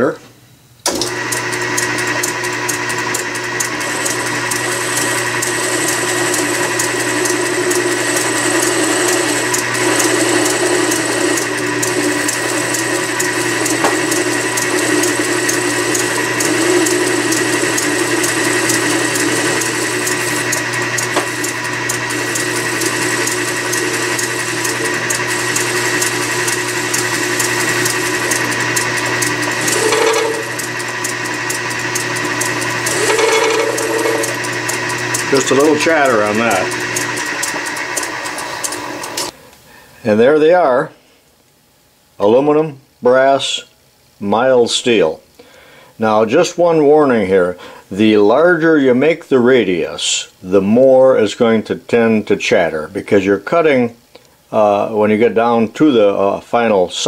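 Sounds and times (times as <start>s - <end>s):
lathe machine whine: 0.9s - 39.4s
tool cutting steel with chatter: 0.9s - 39.4s.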